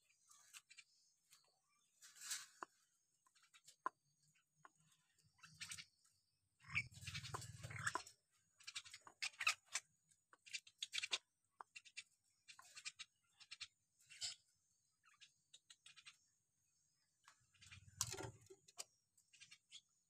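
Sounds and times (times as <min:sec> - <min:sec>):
myna bird squawks and clicks: 0:06.6 - 0:08.1, 0:08.7 - 0:14.4.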